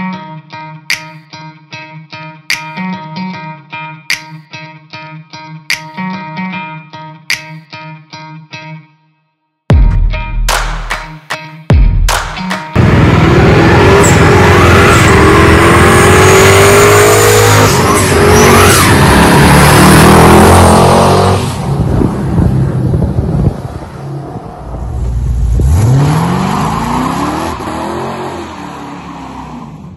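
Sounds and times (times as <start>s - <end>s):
car engine revving: 12.2s - 29.9s.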